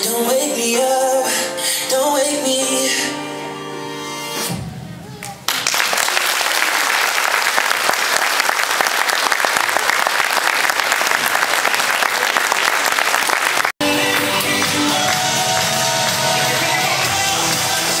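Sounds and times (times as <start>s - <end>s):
music: 0.0s - 5.2s, 13.8s - 18.0s
audience applauding: 5.4s - 17.0s.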